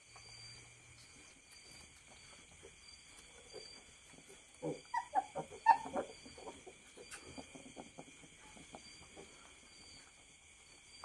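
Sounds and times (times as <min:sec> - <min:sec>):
crickets chirring: 0:00.0 - 0:11.0
piglets squeaking and squealing: 0:03.5 - 0:09.2.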